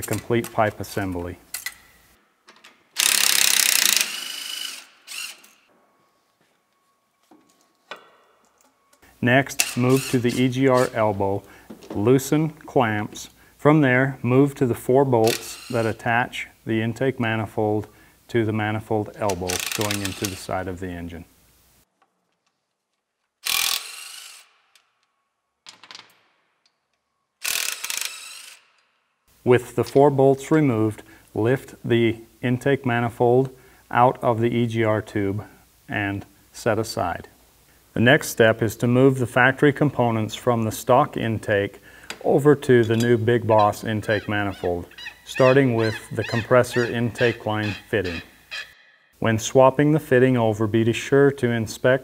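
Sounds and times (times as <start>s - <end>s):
impact wrench on bolts: 2.5s - 5.7s, 19.3s - 20.5s, 23.4s - 24.9s, 27.4s - 29.0s.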